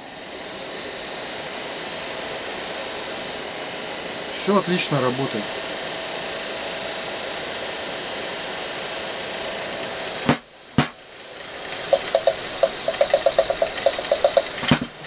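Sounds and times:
fast irregular ticking: 10.8 - 15.0.

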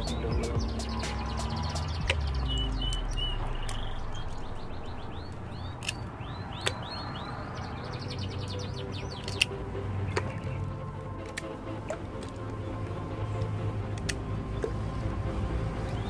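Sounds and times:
bird chirping: 0.0 - 11.0, 15.8 - 16.0
pliers cracking snail shells: 5.7 - 6.8, 9.2 - 9.5.

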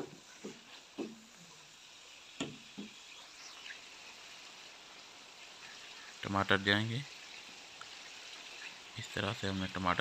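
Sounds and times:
food sizzling in a pan: 0.0 - 10.0
wooden spoon knocking a pan: 2.4 - 3.0.

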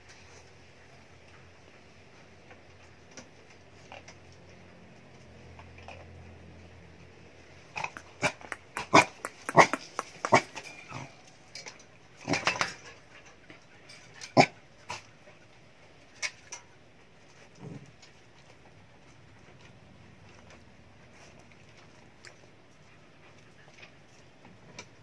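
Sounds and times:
small dogs yapping: 7.8 - 11.1.

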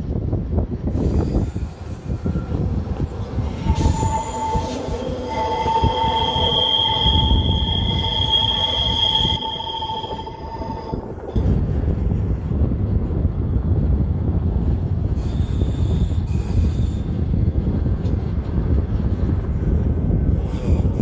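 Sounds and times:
train rumbling: 0.0 - 21.0
train wheels squealing: 0.9 - 11.4, 15.2 - 17.3, 20.4 - 21.0.

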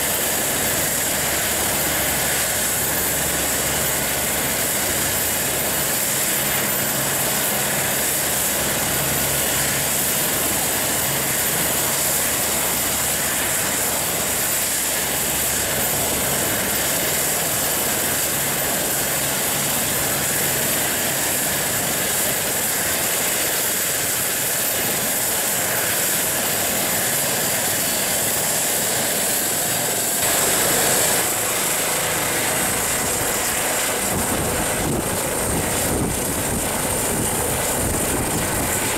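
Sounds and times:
helicopter turbine whine: 0.0 - 38.9
rotor hissing rush: 29.8 - 38.9.

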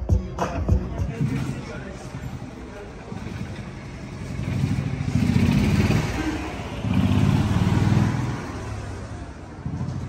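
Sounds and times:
engine revving: 3.2 - 10.0.

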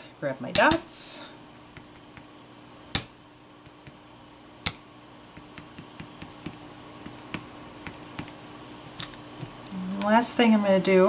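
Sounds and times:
rubber stamp tapping on card: 2.9 - 4.0, 4.6 - 4.8, 5.4 - 8.4.

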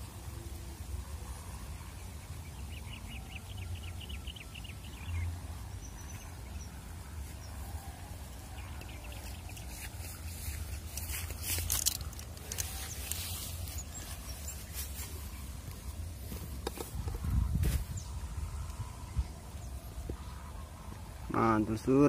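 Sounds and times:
bird chirping trill: 1.9 - 7.6, 8.3 - 16.0
wind buffeting microphone: 16.2 - 21.3.

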